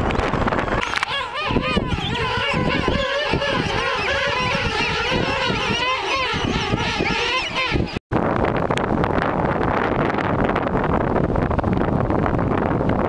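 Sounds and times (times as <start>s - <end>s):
surf: 0.0s - 8.0s
wind rumbling on microphone: 0.0s - 13.0s
penguins calling: 0.6s - 8.0s.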